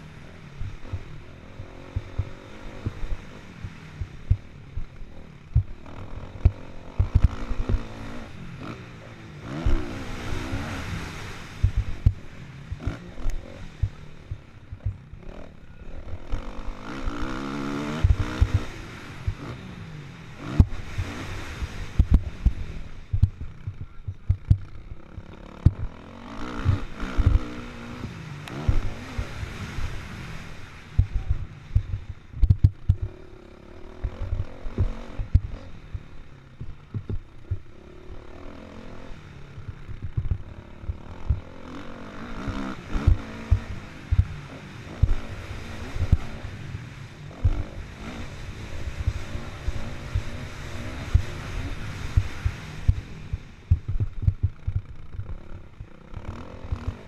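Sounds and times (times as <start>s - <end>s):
motorcycle engine revving: 0.0s - 57.0s
low thumps: 1.9s - 7.9s, 11.6s - 13.0s, 20.6s - 26.0s, 30.9s - 33.1s, 34.0s - 37.7s, 39.6s - 41.6s, 43.0s - 44.4s, 52.2s - 55.8s.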